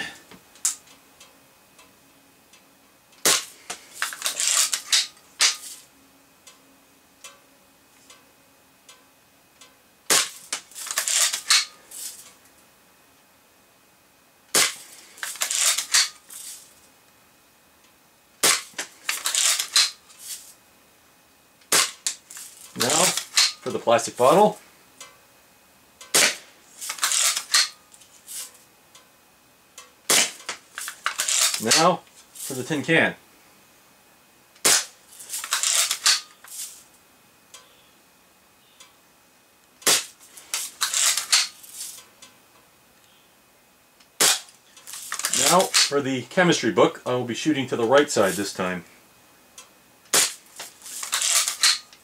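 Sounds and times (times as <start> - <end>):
bb rifle shots: 10.1 - 11.7, 21.7 - 22.1, 26.1 - 27.8, 30.1 - 31.8.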